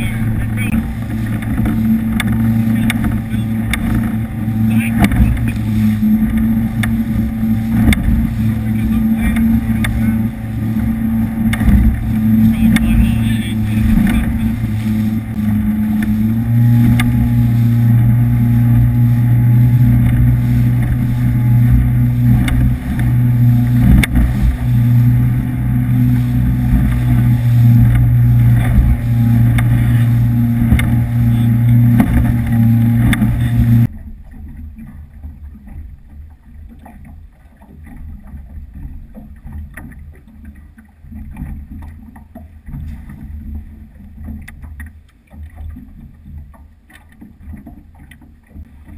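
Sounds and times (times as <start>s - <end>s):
wind and spray noise: 0.0s - 33.9s
hull thumping on waves: 0.0s - 48.9s
powerboat engine drone: 0.0s - 48.9s.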